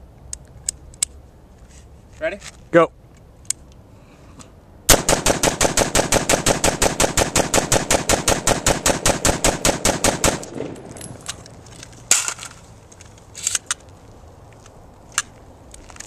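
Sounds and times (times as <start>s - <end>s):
rapid semi-automatic rifle shots: 4.9s - 10.8s.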